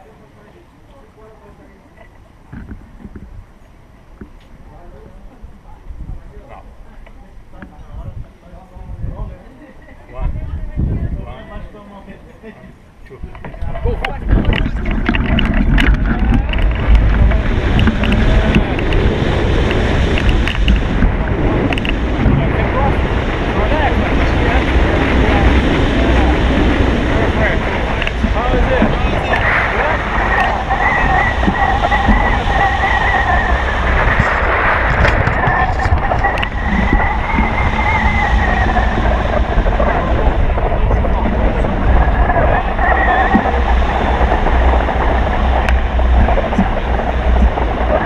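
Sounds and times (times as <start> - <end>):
wind rushing over microphone: 1.1 - 48.0
clicks from wind buffeting: 2.0 - 4.6, 12.6 - 48.0.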